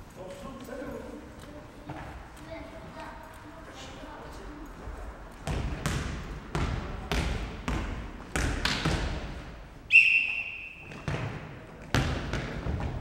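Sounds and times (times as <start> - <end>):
ball bouncing on wooden floor: 5.4 - 9.2, 10.9 - 13.0
referee's whistle blast: 9.9 - 11.0.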